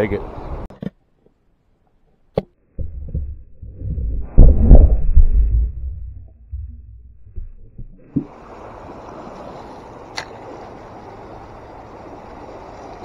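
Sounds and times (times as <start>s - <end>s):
muffled underwater thumps: 2.8s - 8.4s
river water rushing: 8.2s - 13.0s.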